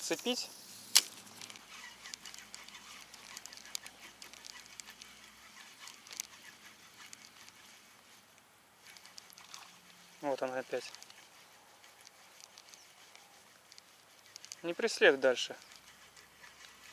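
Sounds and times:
soft small ticks: 0:00.9 - 0:16.9
distant waterfowl calling: 0:08.8 - 0:16.9.

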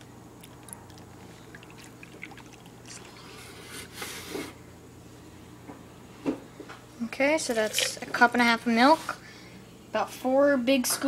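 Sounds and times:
milk pouring and splashing: 0:00.6 - 0:03.4, 0:07.4 - 0:08.4.

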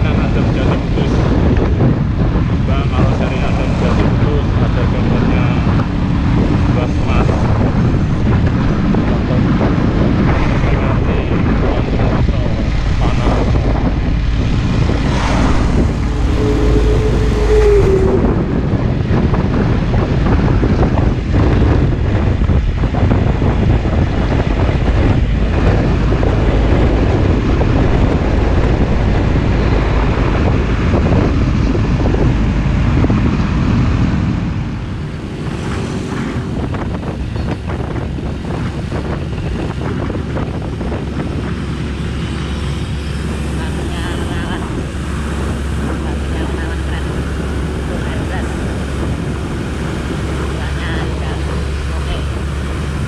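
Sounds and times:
truck diesel engine and tyres: 0:00.0 - 0:53.0
wind noise on microphone: 0:00.0 - 0:53.0
brief steady tone: 0:15.3 - 0:18.5.

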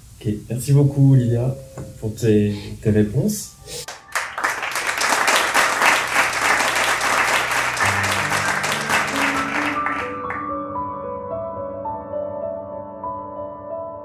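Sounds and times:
audience applause: 0:03.9 - 0:10.4
soft music with held notes: 0:06.9 - 0:14.0.

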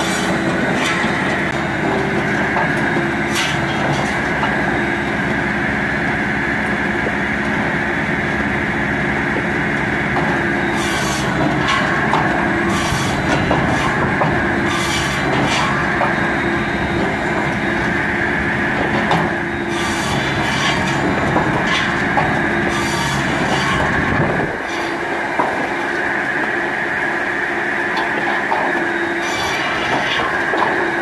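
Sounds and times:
circular saw mechanical drone: 0:00.0 - 0:31.0
saw blade rasping through logs: 0:10.7 - 0:15.9, 0:19.7 - 0:25.1, 0:29.2 - 0:30.6.

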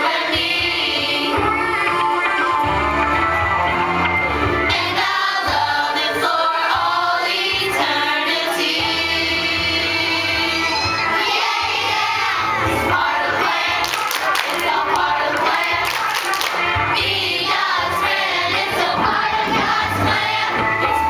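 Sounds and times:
children's choir singing: 0:00.0 - 0:03.6, 0:04.7 - 0:21.0
musical accompaniment with bass: 0:00.0 - 0:21.0
hand claps: 0:13.8 - 0:16.8.

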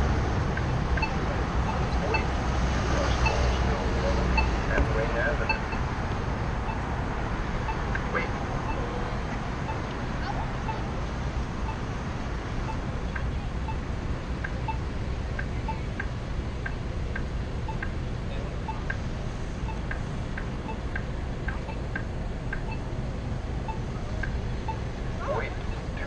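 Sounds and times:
traffic rumble: 0:00.0 - 0:26.0
wind: 0:00.0 - 0:26.0
two-pitch electronic beeps: 0:00.7 - 0:02.4, 0:05.4 - 0:05.8, 0:09.7 - 0:10.9, 0:14.5 - 0:14.8, 0:15.4 - 0:16.1, 0:17.7 - 0:17.9, 0:18.6 - 0:19.0, 0:19.6 - 0:20.0, 0:21.5 - 0:22.0, 0:23.7 - 0:24.8.

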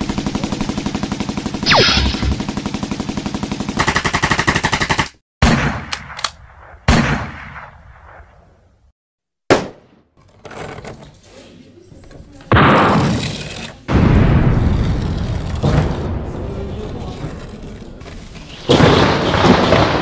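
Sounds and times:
machine-gun fire: 0:00.0 - 0:05.9, 0:18.7 - 0:20.0
sharp echoing gunshots: 0:01.6 - 0:02.6, 0:03.8 - 0:08.6, 0:09.5 - 0:10.0, 0:18.7 - 0:20.0
loud blast: 0:01.7 - 0:02.4.

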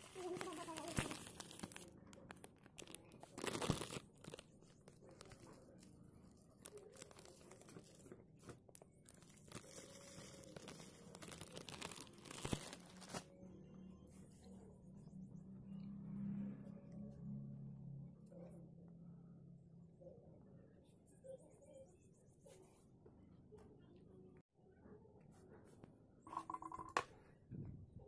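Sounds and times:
plastic bag crinkling: 0:00.0 - 0:13.4.

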